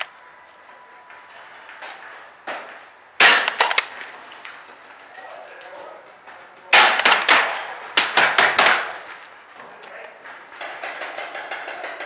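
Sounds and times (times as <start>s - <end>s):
paintball gun cracks: 3.2s - 4.6s.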